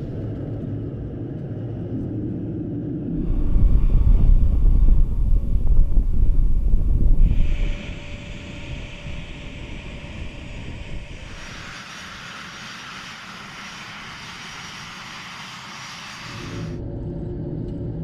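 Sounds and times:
jet engines whining: 2.2s - 17.0s
jet hiss: 3.2s - 16.8s.

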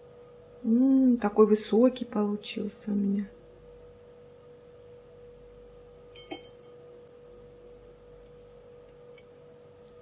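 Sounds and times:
faint steady hum: 0.0s - 10.0s
fork clinking on glass plate: 6.1s - 6.8s.

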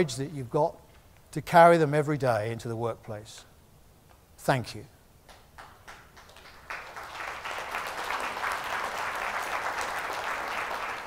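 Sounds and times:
audience applause: 5.6s - 11.0s.

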